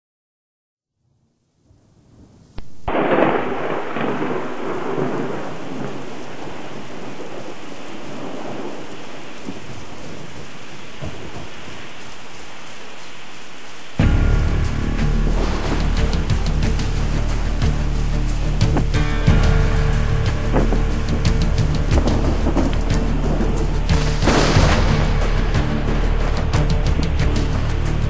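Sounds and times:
heavy rain: 2.3 - 28.0
thunder crack: 2.6 - 28.0
music with strong bass: 14.0 - 28.0.

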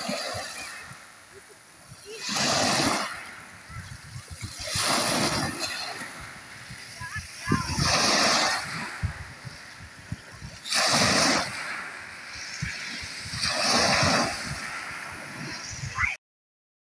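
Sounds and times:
small waves lapping on shore: 0.0 - 16.2.

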